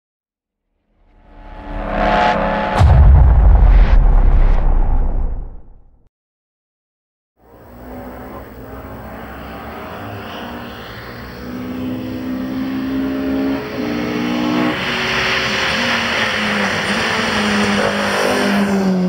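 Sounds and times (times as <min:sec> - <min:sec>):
rally car engine at high revs: 0:07.5 - 0:19.0.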